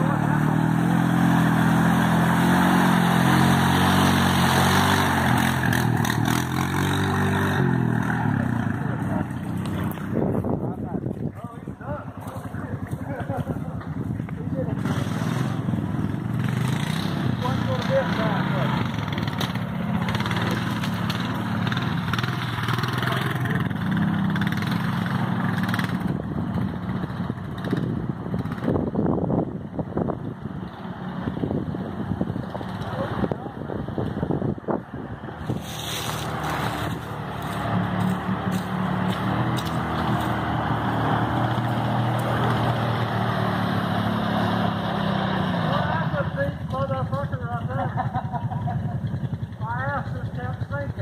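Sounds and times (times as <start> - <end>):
quad engine running under load: 0.0 - 51.0.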